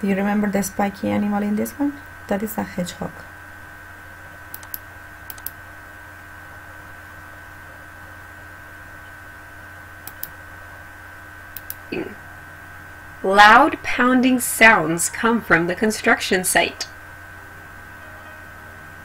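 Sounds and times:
steady electrical hum: 0.0 - 19.0
sharp computer clicks: 4.5 - 5.6, 10.0 - 10.4, 11.5 - 11.9.

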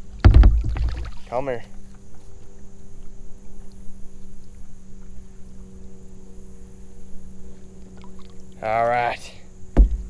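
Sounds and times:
water sloshing around kayak: 0.0 - 8.8
steady low hum: 0.0 - 10.0.

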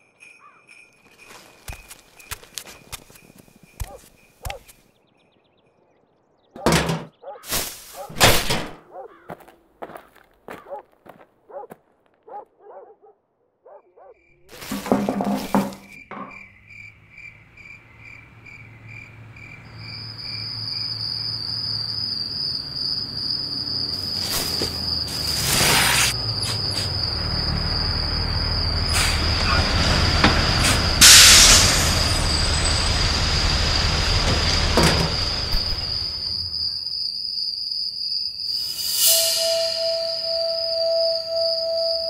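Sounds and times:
crickets chirping: 0.0 - 8.1, 13.7 - 42.0
insect trill: 14.0 - 42.0.

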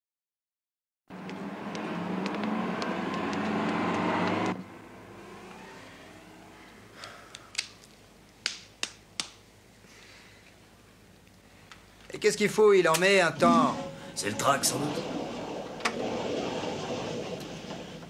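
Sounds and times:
street traffic noise: 1.1 - 7.4.

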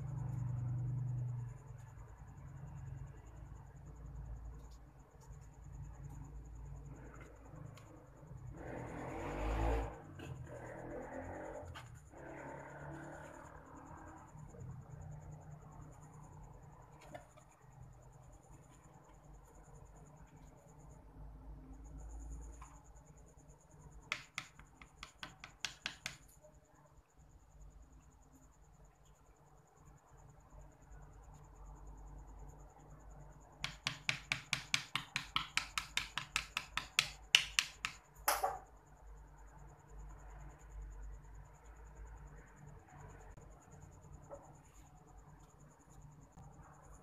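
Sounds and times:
crickets chirping: 0.0 - 47.0
tool tapping on wood: 24.1 - 26.3, 33.6 - 38.6.

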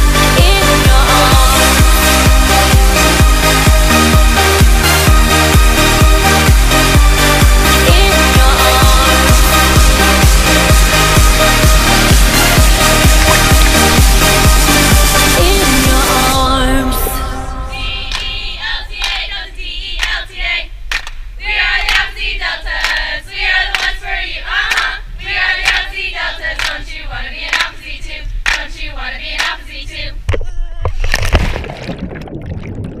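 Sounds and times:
rhythmic clapping: 1.3 - 15.7, 18.1 - 19.4, 20.0 - 29.7
women chanting in unison: 7.9 - 9.7, 15.4 - 20.7, 21.4 - 30.2
rushing water: 9.6 - 16.3.

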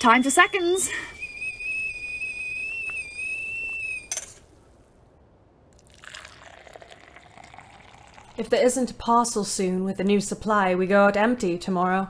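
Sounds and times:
stovetop kettle whistling: 0.0 - 4.4.

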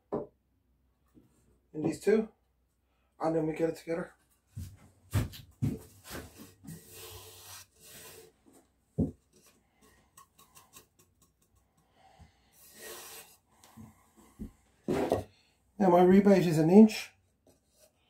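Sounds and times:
hands rubbing on wood: 5.7 - 8.4.

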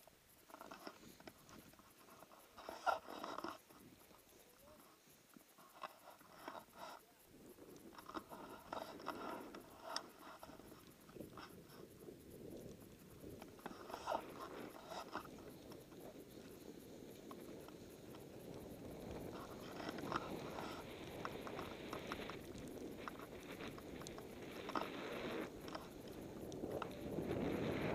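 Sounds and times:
snow crunching under sliding rider: 0.0 - 27.9
small clicks and knocks: 0.3 - 11.8.

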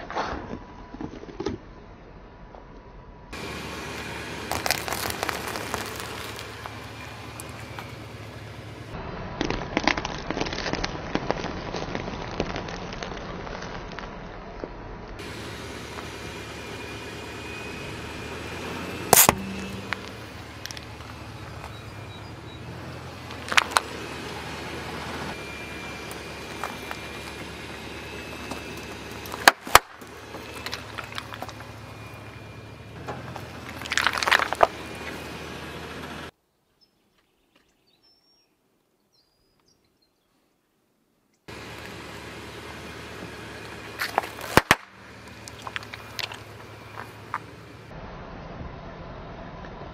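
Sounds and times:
car engine rumble: 0.1 - 36.4, 41.5 - 49.9
tyre crushing water balloons: 4.4 - 6.8.

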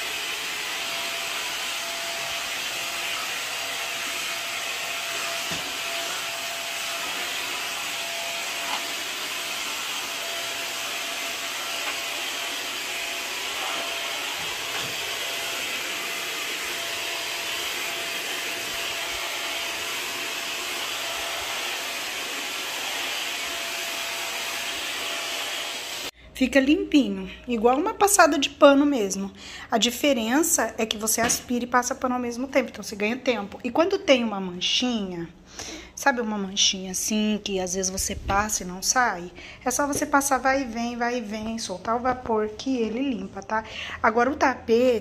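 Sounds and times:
steam mop motor hiss: 0.0 - 26.1.

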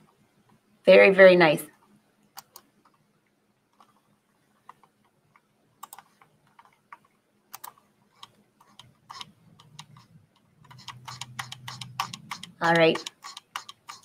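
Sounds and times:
computer keyboard and mouse clicking: 2.3 - 3.0, 4.6 - 14.0.

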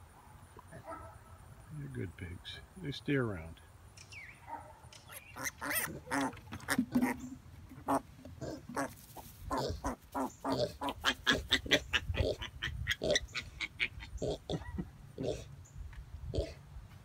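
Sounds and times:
pigs grunting: 5.4 - 7.2, 7.8 - 15.5, 16.3 - 16.6.

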